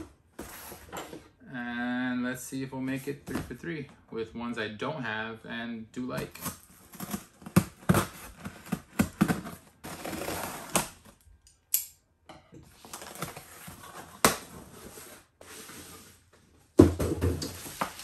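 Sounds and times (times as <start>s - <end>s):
cardboard scraping: 6.2s - 11.2s, 12.8s - 16.4s.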